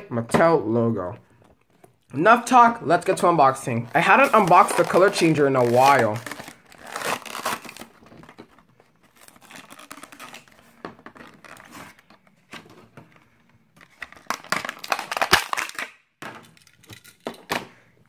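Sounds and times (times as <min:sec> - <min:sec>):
plastic packaging crinkling: 0:03.6 - 0:12.1, 0:13.8 - 0:15.8.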